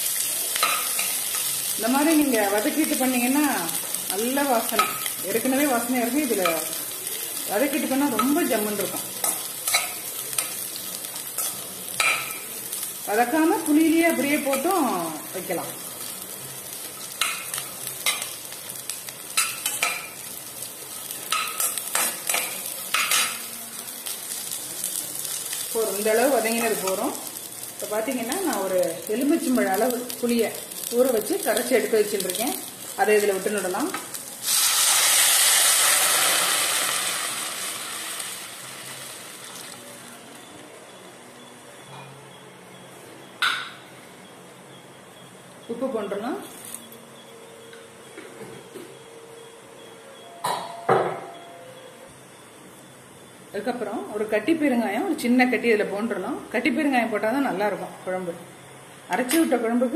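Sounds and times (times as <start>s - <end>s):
onions sizzling in oil: 0.0s - 41.6s.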